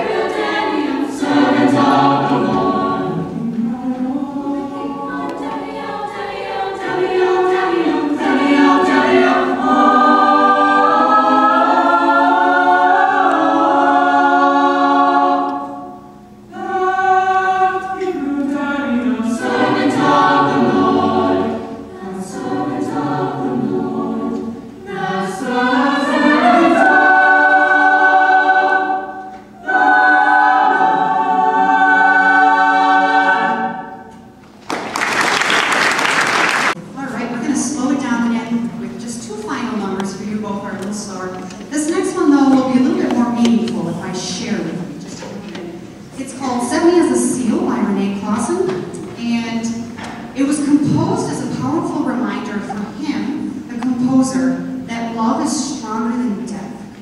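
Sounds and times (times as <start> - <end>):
choir singing sustained chords: 0.0 - 34.4.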